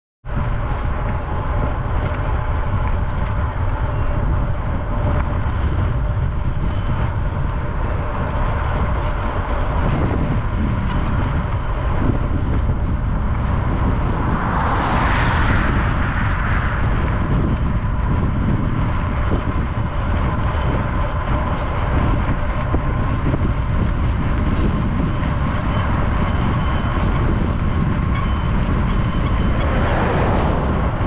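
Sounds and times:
bicycle road rumble: 0.2s - 31.0s
wind: 0.2s - 31.0s
car passing: 11.9s - 19.2s, 28.8s - 31.0s.

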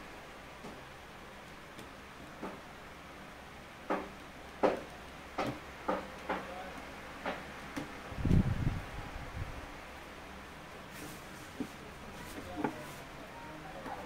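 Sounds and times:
faint steady hum: 0.0s - 14.0s
knocks and clicks on cardboard box: 3.9s - 6.5s.

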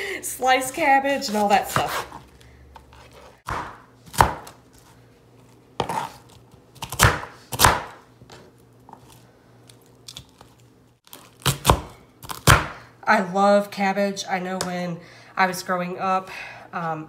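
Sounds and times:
knife chopping cabbage: 1.2s - 2.2s, 2.8s - 5.0s, 5.8s - 8.0s, 11.1s - 12.8s.

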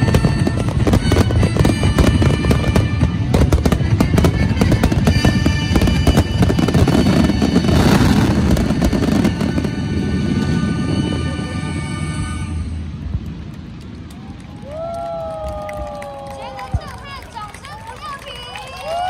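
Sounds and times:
music playing: 0.0s - 12.9s
fireworks booming and crackling: 0.0s - 14.1s.

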